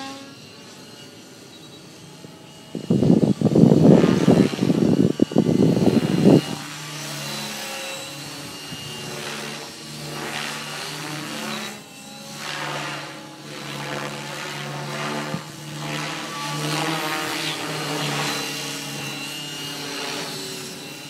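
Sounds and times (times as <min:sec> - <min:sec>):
model helicopter rotor hum: 0:00.0 - 0:21.0
wind buffeting microphone: 0:02.2 - 0:07.0.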